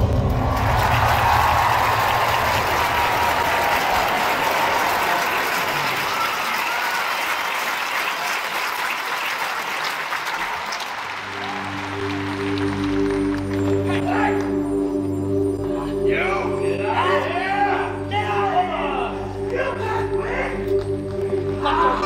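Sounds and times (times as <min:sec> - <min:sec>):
audience applauding: 0:00.0 - 0:14.6.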